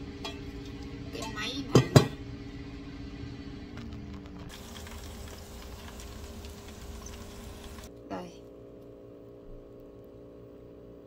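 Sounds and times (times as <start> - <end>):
rice sizzling in a wok: 0.0 - 7.9
steady hum: 0.0 - 11.0
bright steady hiss: 4.5 - 7.9.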